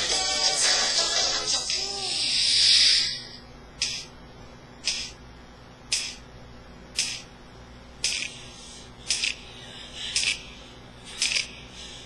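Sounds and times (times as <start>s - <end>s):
faint pop song: 0.0s - 2.3s.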